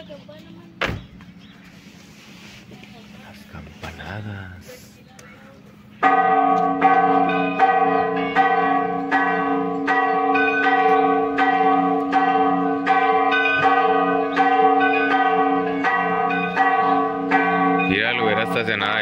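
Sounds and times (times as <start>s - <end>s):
church bells ringing: 6.0s - 19.0s.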